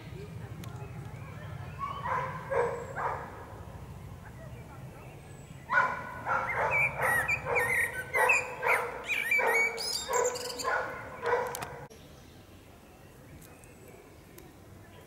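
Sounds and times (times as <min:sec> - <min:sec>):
dog barking: 0:01.8 - 0:03.4, 0:05.7 - 0:11.9.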